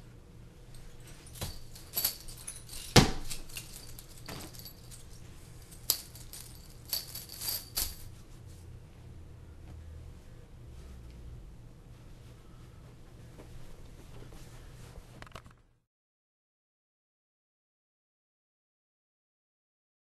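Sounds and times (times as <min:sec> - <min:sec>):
metal chain rattling: 0:00.7 - 0:08.1.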